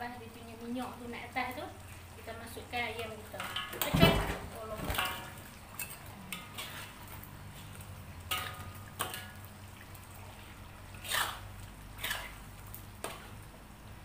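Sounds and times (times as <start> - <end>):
metal spatula scraping a wok: 4.8 - 9.4, 10.3 - 13.4.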